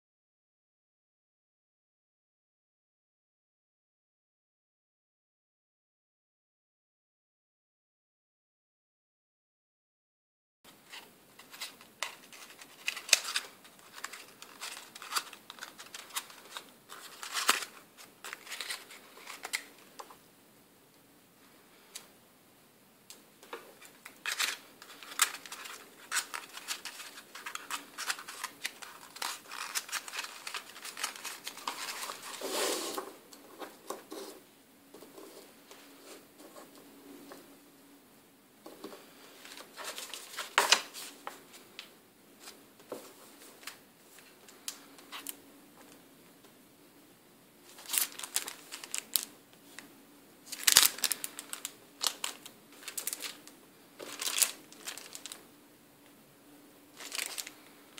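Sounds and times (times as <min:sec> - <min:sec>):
paper and foil wrappers crinkling: 0:10.9 - 0:19.9, 0:23.7 - 0:32.5, 0:39.4 - 0:41.4, 0:47.7 - 0:55.4, 0:56.9 - 0:57.9.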